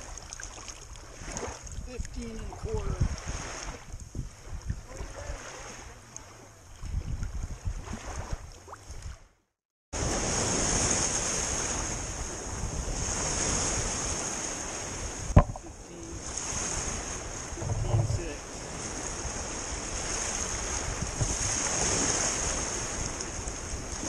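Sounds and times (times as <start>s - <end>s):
water lapping and splashing: 0.0s - 9.4s, 10.0s - 24.0s
wind buffeting microphone: 1.0s - 9.2s, 10.0s - 24.0s
small knocks: 15.3s - 15.7s.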